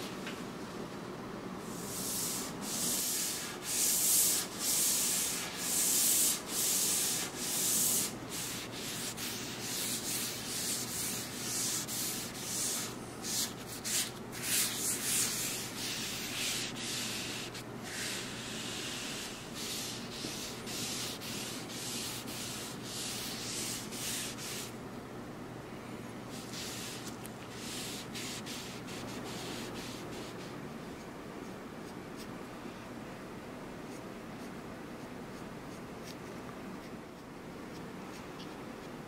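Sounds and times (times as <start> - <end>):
pad rubbing on wooden tabletop: 1.8 - 24.7.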